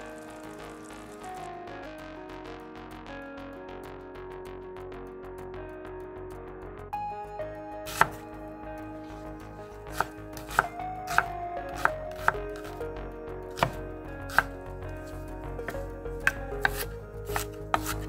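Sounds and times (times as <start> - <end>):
knife chopping on wooden board: 7.9 - 8.2, 9.9 - 12.8, 13.6 - 14.6, 15.6 - 18.0.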